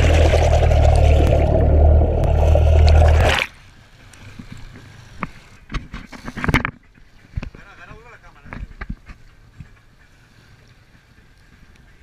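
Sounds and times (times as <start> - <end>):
muffled underwater motor rumble: 0.0 - 3.4
water dripping and splashing: 0.0 - 3.6.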